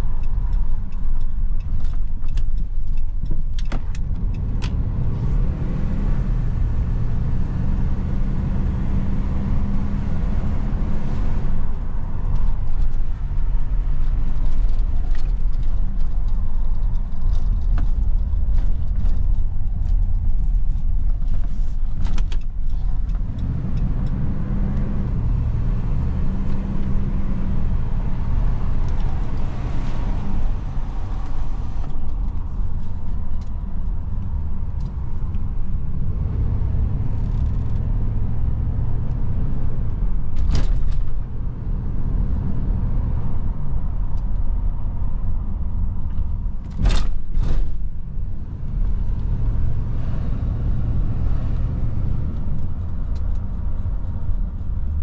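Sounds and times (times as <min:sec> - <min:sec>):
pickup truck engine drone: 0:22.8 - 0:32.7.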